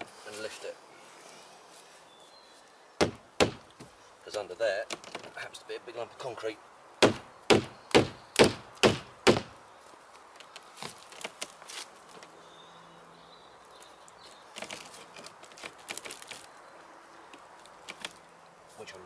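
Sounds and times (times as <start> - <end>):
hammer blows on wood: 3.0 - 3.9, 7.0 - 9.6.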